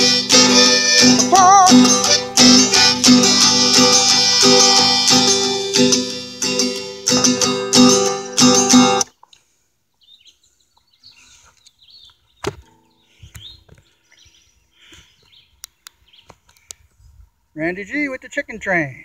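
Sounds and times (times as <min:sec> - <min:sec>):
acoustic guitar strumming: 0:00.0 - 0:09.1.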